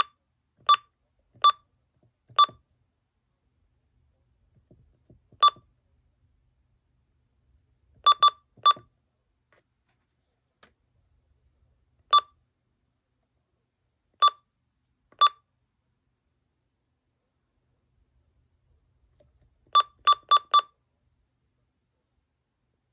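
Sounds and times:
keypad beeping: 0.0 - 1.7, 2.3 - 2.6, 5.4 - 5.7, 8.0 - 8.9, 19.7 - 20.7.

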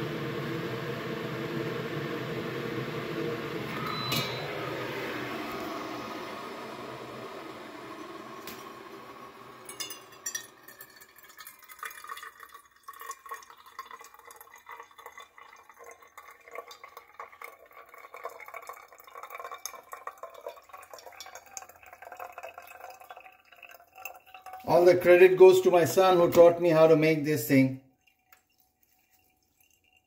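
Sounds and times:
hot water pouring: 0.0 - 30.0
water dripping into a cup: 9.7 - 26.8, 27.5 - 30.0.

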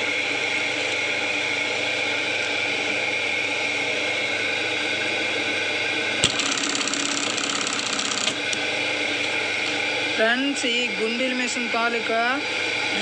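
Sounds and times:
sewing machine motor hum: 6.2 - 8.6
fast machine ticking: 6.3 - 8.4.

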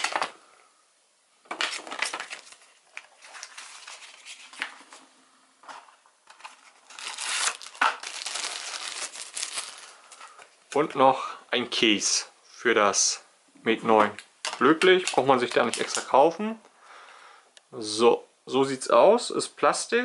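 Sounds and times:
paper packaging rustling: 0.0 - 0.4, 1.5 - 10.6, 14.4 - 16.1.

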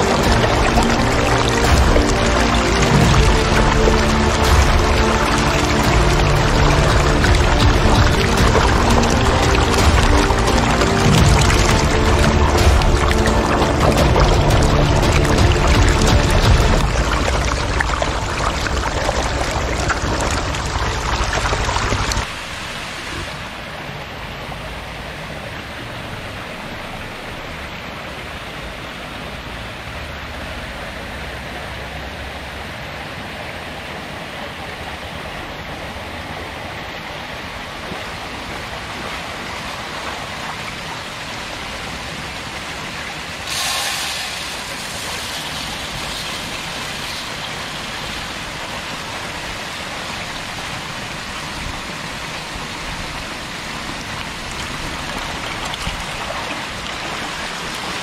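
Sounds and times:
water pouring into tanks: 0.0 - 23.4, 39.9 - 58.0.

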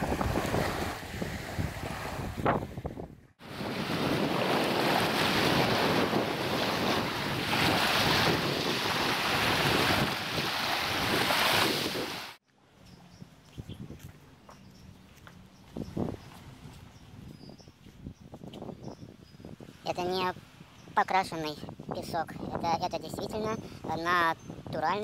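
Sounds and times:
waves washing onto beach: 0.0 - 2.8, 3.4 - 12.4
wind buffeting microphone: 0.0 - 12.3, 12.9 - 25.0.

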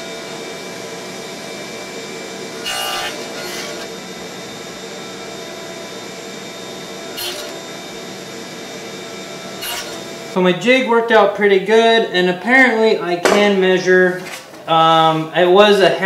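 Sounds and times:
table saw running: 0.0 - 10.6
saw blade cutting wood: 2.6 - 4.0, 7.1 - 7.8, 9.6 - 10.4.

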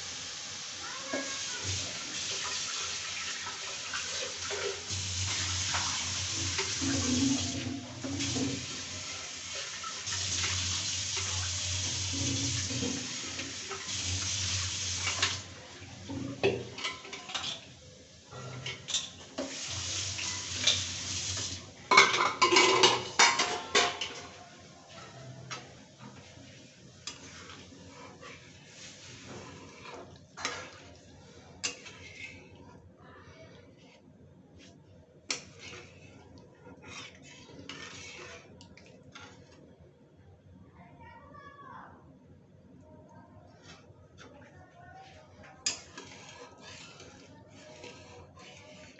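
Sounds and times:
food bubbling and sizzling in a pan: 0.0 - 39.8, 45.2 - 48.9
metal spatula scraping a pan: 2.1 - 15.5, 16.4 - 24.3, 24.9 - 32.6, 35.3 - 39.6, 43.6 - 44.4, 45.0 - 48.9.

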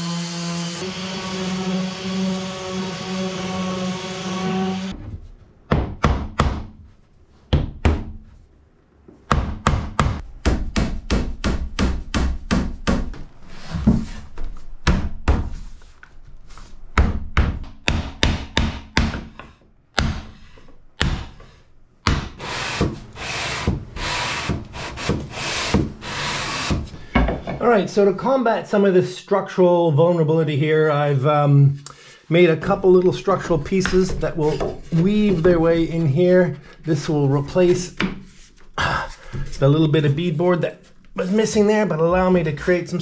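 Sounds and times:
orbital sander humming: 0.0 - 4.9
wood scraping on wood: 32.6 - 41.7.

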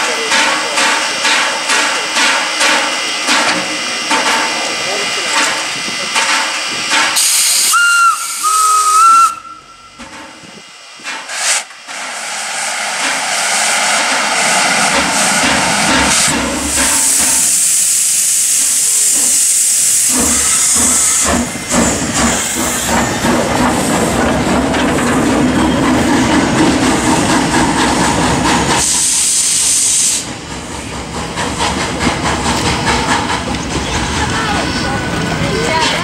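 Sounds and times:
steam hissing loudly: 0.0 - 9.7, 11.0 - 36.0
train wheels rumbling: 0.0 - 36.0
steam locomotive whistle: 7.2 - 10.0.

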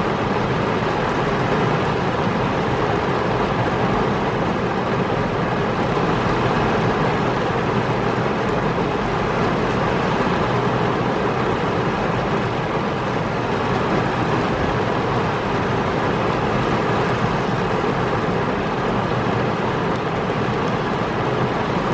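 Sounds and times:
heavy rain on car windshield: 0.0 - 21.9.

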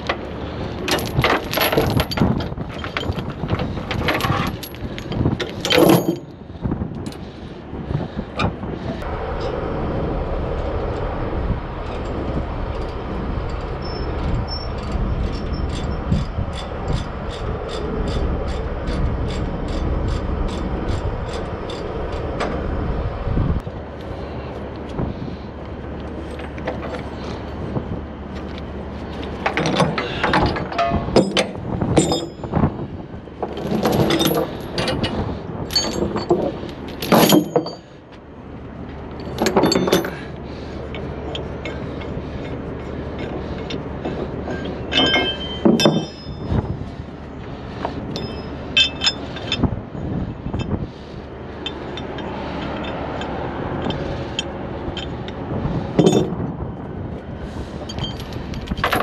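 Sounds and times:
chain links clanking: 0.0 - 6.4, 11.8 - 22.6, 28.5 - 32.7, 33.4 - 38.0, 39.1 - 46.8, 48.1 - 49.7, 51.6 - 56.4, 57.8 - 59.0
steady low hum: 0.0 - 59.0.

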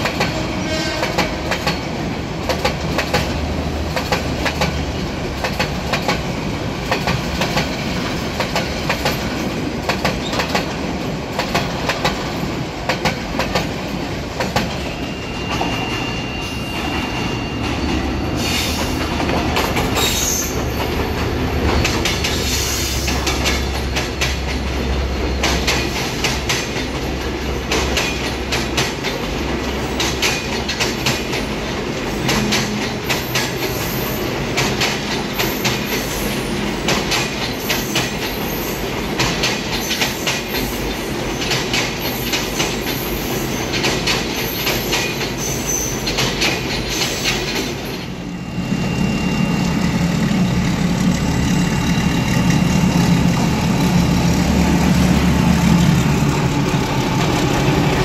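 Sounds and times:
train wheels clattering over rail joints: 0.0 - 15.0, 18.6 - 48.2
high wheel squeals: 14.8 - 19.2, 19.8 - 23.9, 44.4 - 46.1, 47.8 - 50.6
locomotive engine rumble: 48.6 - 58.0.

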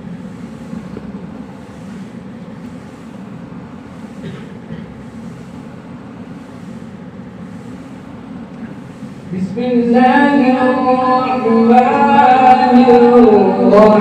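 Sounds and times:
man reciting melodically: 9.3 - 14.0.

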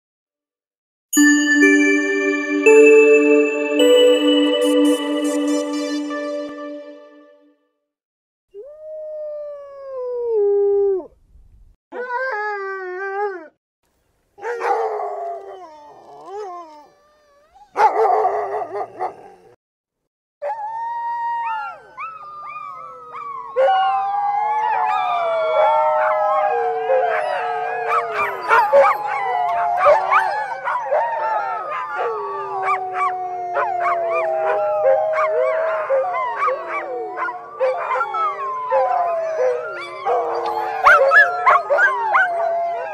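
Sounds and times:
dogs howling: 21.4 - 42.9
dogs yipping: 27.1 - 31.0, 39.4 - 42.3.

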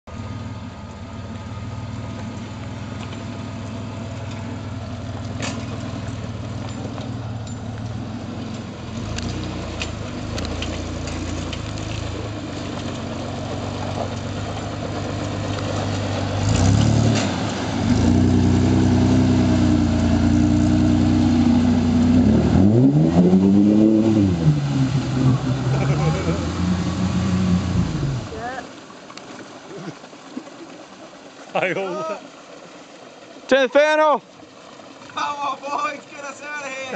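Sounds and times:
engine running and revving: 0.0 - 28.4.

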